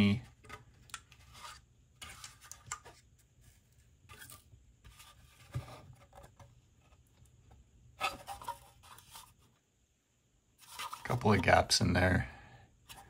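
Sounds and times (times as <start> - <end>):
plastic rubbing against skin: 10.6 - 11.4.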